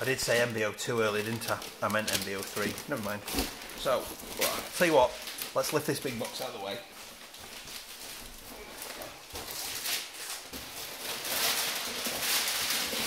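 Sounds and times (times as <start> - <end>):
cardboard rustling and scraping: 1.1 - 5.4.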